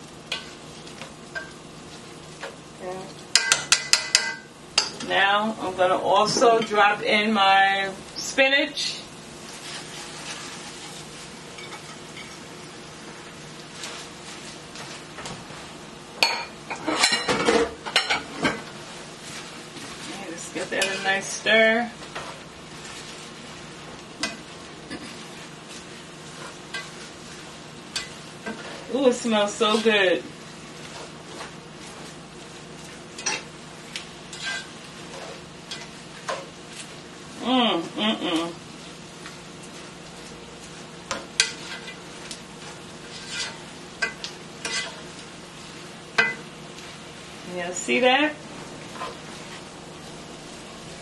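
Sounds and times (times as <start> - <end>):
food sizzling in a skillet: 0.0 - 51.0
metal tongs clinking on pan: 3.3 - 5.1, 33.2 - 33.5, 43.4 - 45.0, 46.2 - 46.4.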